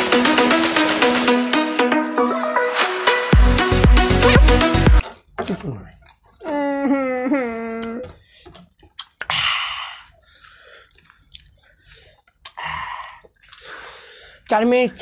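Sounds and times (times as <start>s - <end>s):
chewing: 5.0s - 6.5s, 10.0s - 14.5s.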